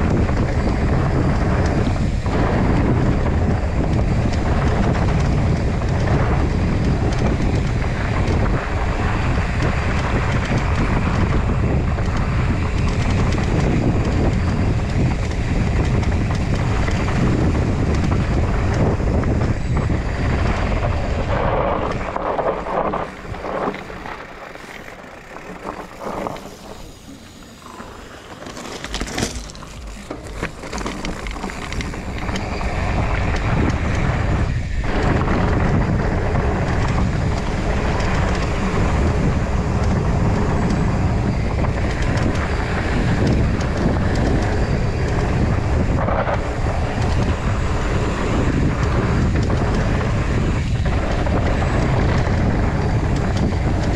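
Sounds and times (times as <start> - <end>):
tyres rolling rumble: 0.0 - 53.9
wind on microphone: 0.0 - 53.9
bike rattling knocks: 22.1 - 34.3.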